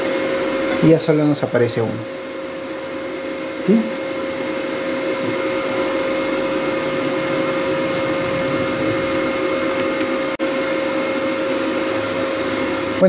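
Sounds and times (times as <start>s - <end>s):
machine whirring hum: 0.0s - 13.0s
mid-pitched whine: 0.0s - 13.0s
faint high whine: 4.4s - 10.4s
even rushing noise: 5.0s - 10.4s.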